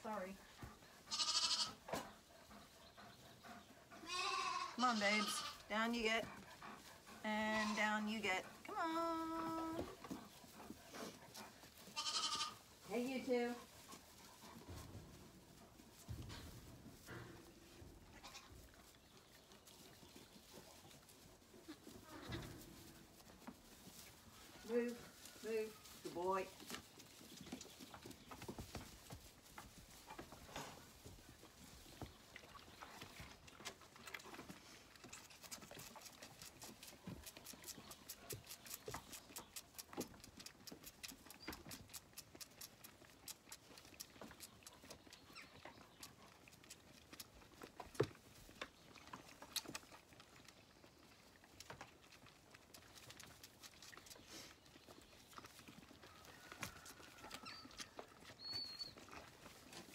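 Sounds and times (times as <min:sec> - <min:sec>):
lambs sucking bottle teats: 0:00.5 - 0:17.1, 0:25.1 - 0:59.9
rustling in hay: 0:09.4 - 0:32.3.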